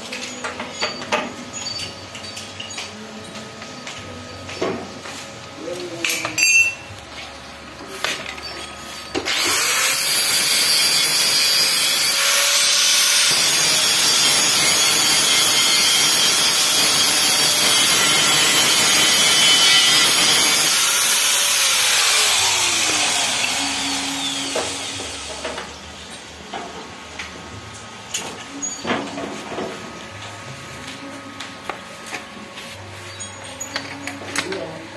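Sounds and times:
angle grinder grinding steel: 8.4 - 25.5.

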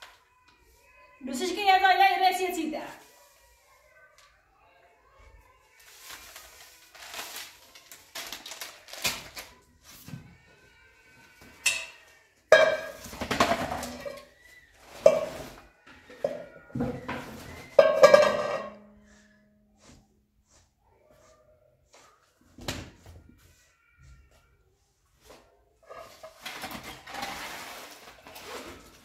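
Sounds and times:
plastic packet rustling: 5.7 - 9.8, 26.0 - 29.0
metal bowls clanking: 11.6 - 14.3, 14.9 - 19.0.

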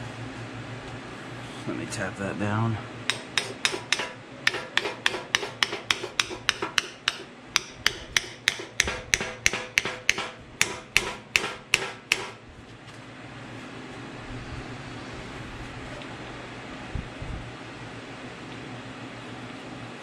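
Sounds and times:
hammer tapping metal: 3.1 - 12.4.

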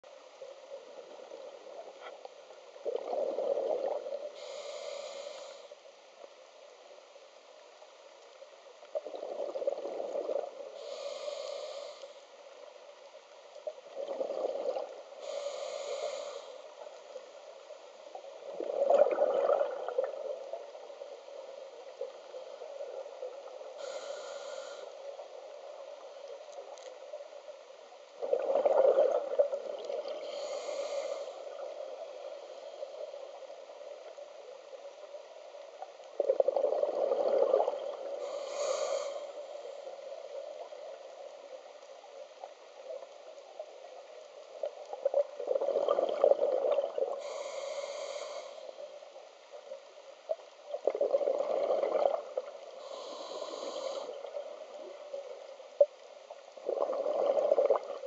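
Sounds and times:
exhaled bubbles gurgling: 2.8 - 4.9, 8.9 - 11.2, 13.7 - 16.3, 18.2 - 24.4, 28.2 - 33.4, 36.1 - 39.0, 44.6 - 48.2, 50.6 - 58.0
regulator inhale hiss: 4.2 - 5.9, 10.7 - 12.4, 15.1 - 16.8, 22.2 - 25.5, 30.2 - 33.7, 38.0 - 40.4, 47.1 - 49.1, 52.7 - 55.0.

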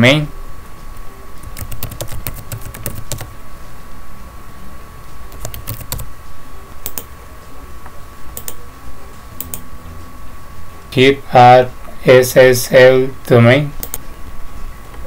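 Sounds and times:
typing on computer keyboard: 1.4 - 3.3, 5.3 - 6.1, 6.8 - 7.1.

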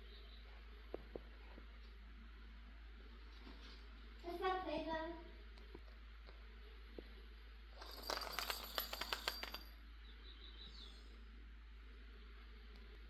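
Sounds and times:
cat toy ball rattling and jingling: 7.8 - 9.8.

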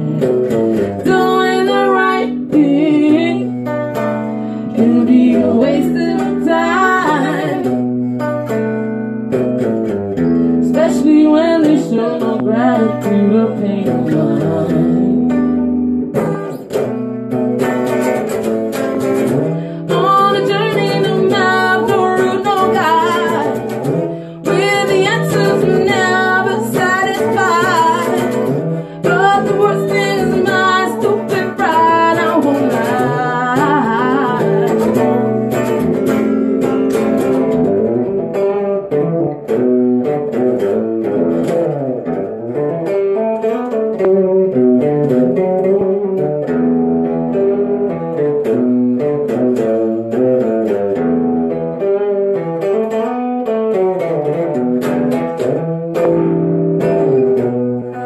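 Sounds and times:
woman singing with vibrato: 0.0 - 7.9, 10.6 - 15.8, 19.2 - 36.4
strummed and picked guitar: 0.0 - 58.0.

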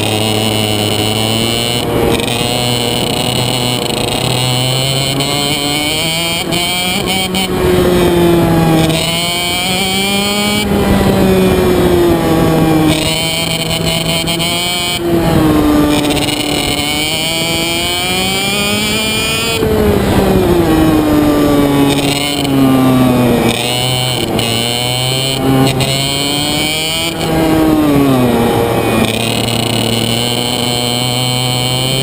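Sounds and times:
kart engine at racing speed: 0.0 - 32.0.

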